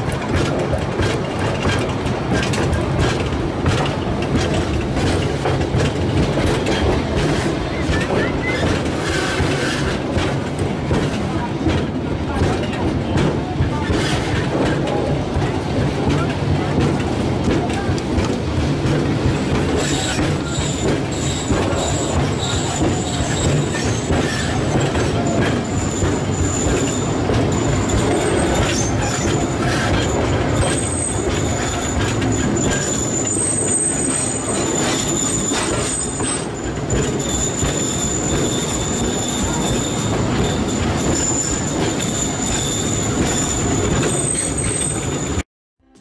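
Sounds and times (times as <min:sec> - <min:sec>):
train wheels rumbling and clattering: 0:00.0 - 0:45.4
high wheel squeal: 0:19.7 - 0:45.4.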